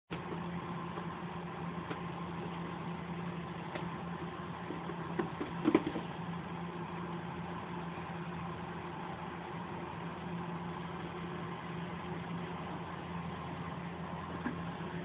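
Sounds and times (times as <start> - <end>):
steady mechanical hum: 0.1 - 15.0.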